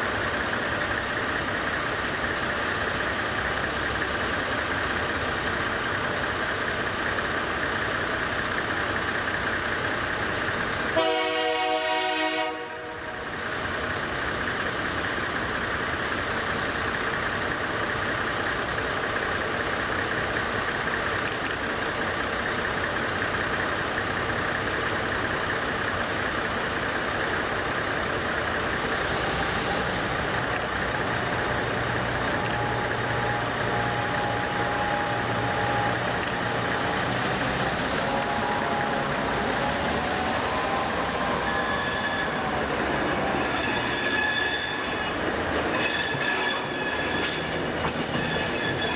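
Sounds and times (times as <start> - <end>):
diesel engines idling: 0.0 - 48.9
low locomotive engine hum: 0.0 - 48.9
diesel locomotive horn blast: 10.9 - 13.3, 32.7 - 48.9.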